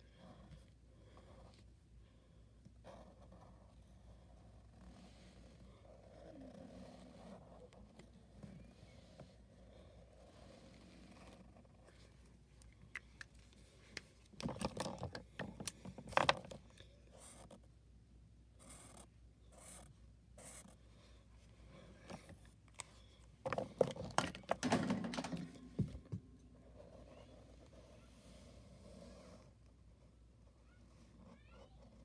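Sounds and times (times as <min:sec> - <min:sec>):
markers scratching over paper: 0:02.8 - 0:12.2.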